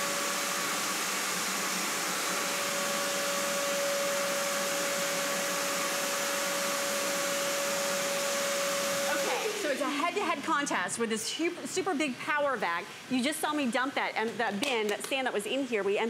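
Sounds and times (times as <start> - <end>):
shop vacuum running: 0.0 - 10.8.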